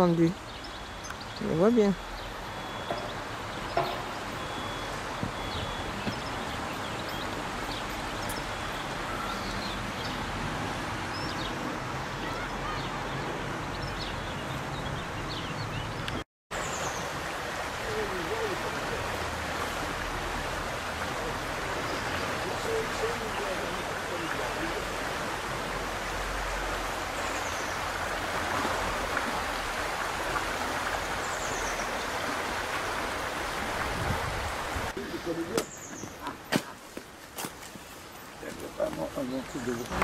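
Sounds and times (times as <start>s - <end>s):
high bird chirps: 0.4s - 9.8s
river rushing over stones: 16.6s - 36.5s, 37.9s - 40.0s.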